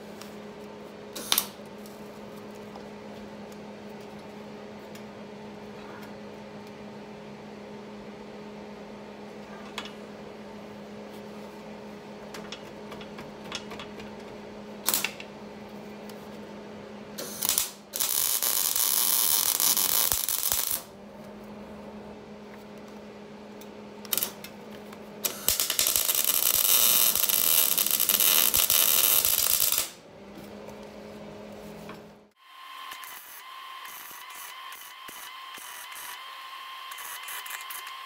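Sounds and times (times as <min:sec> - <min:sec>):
steady low hum: 0:00.0 - 0:32.4
arc welder crackling hiss: 0:17.2 - 0:20.9, 0:25.2 - 0:30.0.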